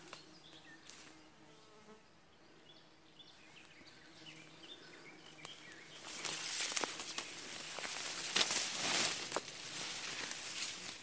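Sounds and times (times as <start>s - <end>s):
rustling through undergrowth: 3.3s - 11.0s.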